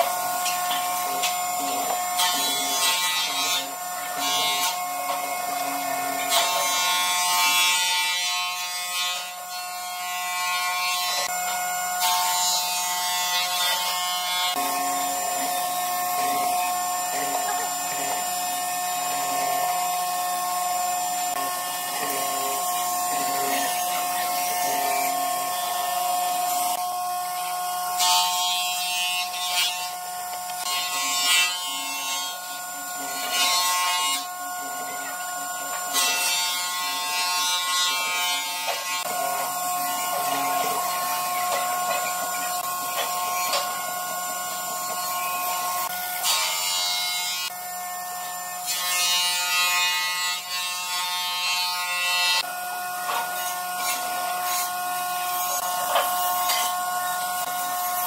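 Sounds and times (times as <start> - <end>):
power tool motor whine: 0.0 - 58.0.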